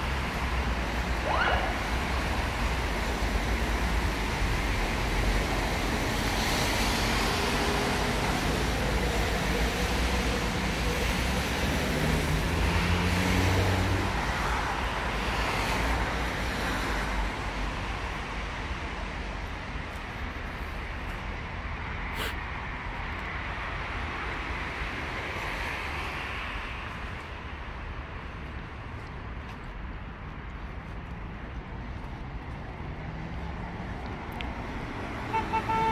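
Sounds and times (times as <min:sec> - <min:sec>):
cars driving past: 0:00.0 - 0:19.7, 0:31.1 - 0:35.9.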